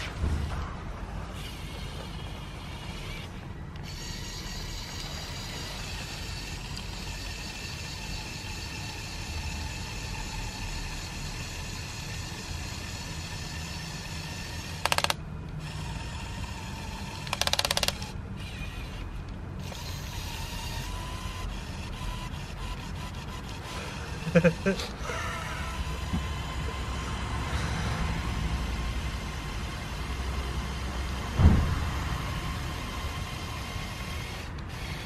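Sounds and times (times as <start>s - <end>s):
toy electric motors whining: 1.3s - 31.4s, 32.1s - 35.0s
rapid clicking: 14.7s - 15.7s, 17.1s - 18.2s.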